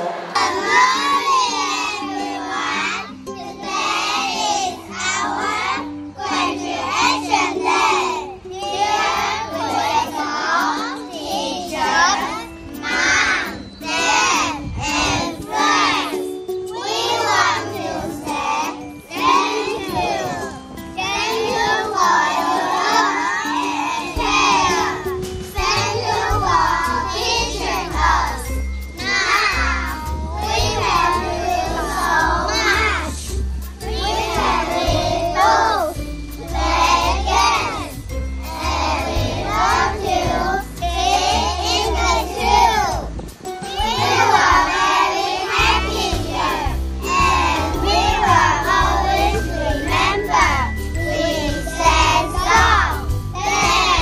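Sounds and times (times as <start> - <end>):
background music with low notes: 0.0 - 54.0
children's voices in unison: 0.0 - 54.0
bass line: 49.6 - 54.0.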